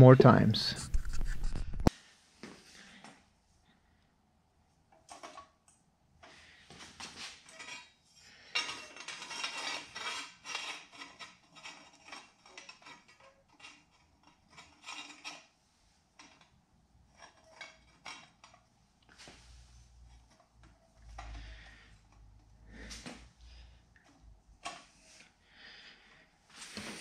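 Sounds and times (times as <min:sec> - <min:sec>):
metal parts clinking and scraping: 0:07.0 - 0:15.5, 0:16.1 - 0:18.7.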